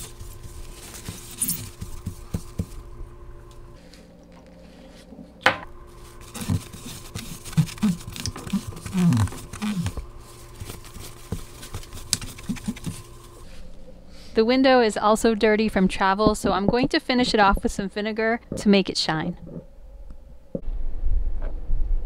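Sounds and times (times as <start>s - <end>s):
cloth rubbing on glass: 0.0s - 2.9s, 5.9s - 13.5s.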